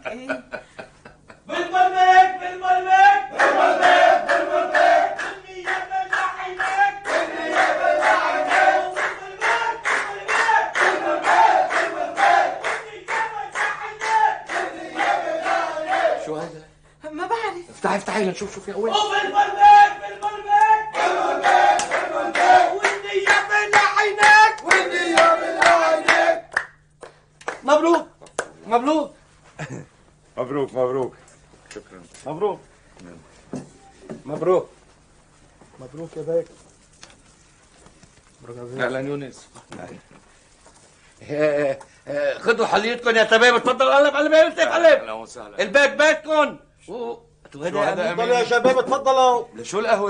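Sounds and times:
several voices singing: 1.5s - 16.4s, 19.1s - 26.5s
handclaps: 4.2s - 15.6s, 20.2s - 28.6s.

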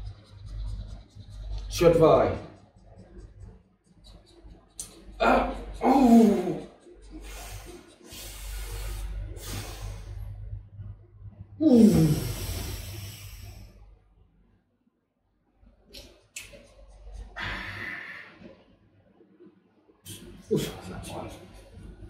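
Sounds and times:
wordless voiced sound: 0.0s - 9.4s, 20.1s - 22.0s
breathy huffing and sniffing: 5.4s - 10.2s.

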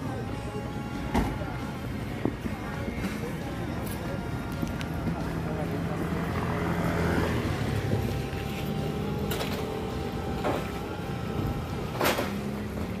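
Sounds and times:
traffic engine hum: 0.0s - 13.0s
vehicles whooshing past: 4.9s - 13.0s.

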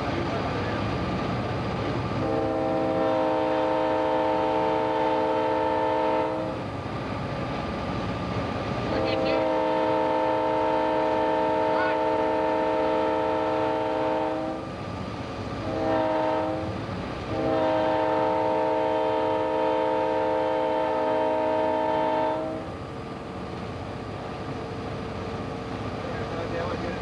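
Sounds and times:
engine and rail noise: 0.0s - 27.0s
locomotive air horn blasts: 2.2s - 6.6s, 8.9s - 14.7s, 15.6s - 22.7s.

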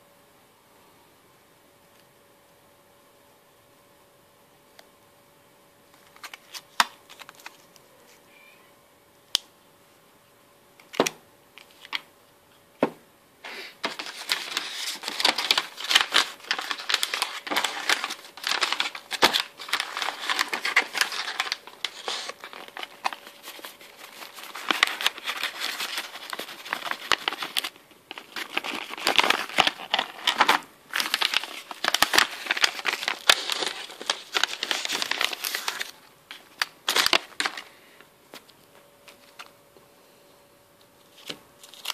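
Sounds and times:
packaging crinkling: 5.9s - 7.8s, 13.8s - 37.7s, 41.1s - 41.9s.

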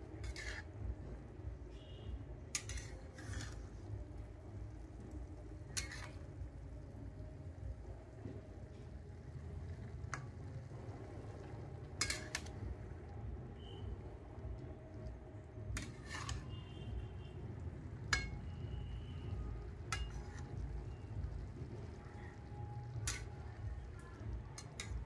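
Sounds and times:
metal spatula scraping a pan: 0.0s - 6.9s, 9.6s - 12.9s, 15.6s - 25.0s
low steady rumble: 0.0s - 25.0s.

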